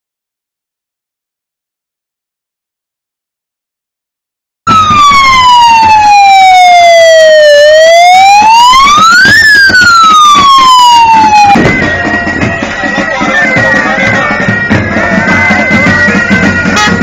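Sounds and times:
wailing siren: 4.7 - 17.0.

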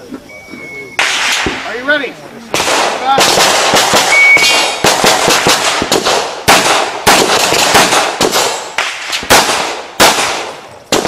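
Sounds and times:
handgun shots with echo: 1.0 - 1.7.

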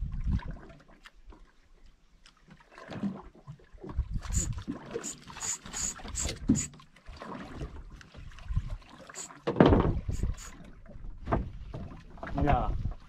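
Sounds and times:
wind on microphone: 0.0 - 0.6, 3.9 - 6.7, 8.2 - 13.0
water lapping against boat hull: 0.0 - 13.0.

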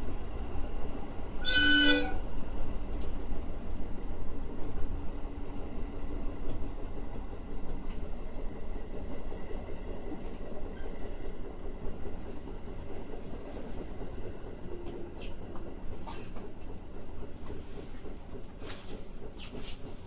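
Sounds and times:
electric train running rumble: 0.0 - 20.0
train horn toot: 1.4 - 2.2.

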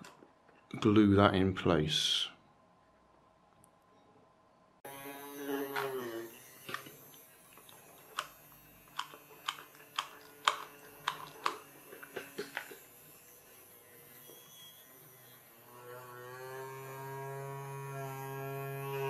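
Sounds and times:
small motor humming: 4.8 - 19.0.

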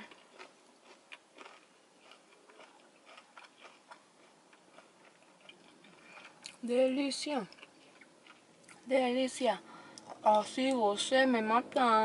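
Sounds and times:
person chewing with mouth closed: 0.0 - 6.6, 7.4 - 8.8.

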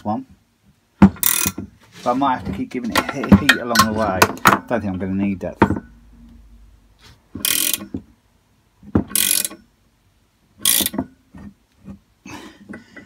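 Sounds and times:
ratchet spanner clicking: 1.2 - 1.6, 7.4 - 8.0, 9.1 - 9.7, 10.6 - 11.0.

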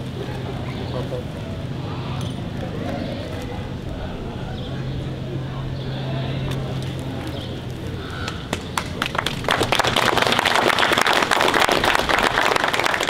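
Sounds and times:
audience applauding: 8.5 - 13.0.

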